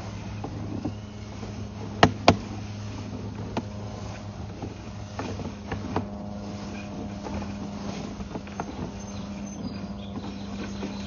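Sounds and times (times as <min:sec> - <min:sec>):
low mechanical drone: 0:00.0 - 0:11.0
sharp clicks and knocks: 0:00.4 - 0:02.5.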